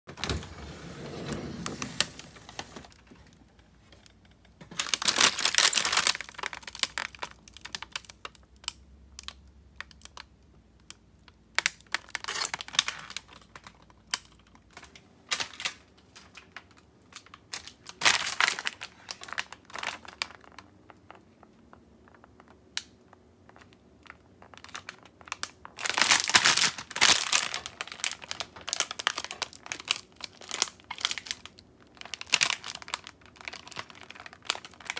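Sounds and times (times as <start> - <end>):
freezer drawer sliding open: 0.1 - 2.9
plastic packaging crinkling: 1.5 - 10.3, 11.3 - 21.6, 23.5 - 34.9.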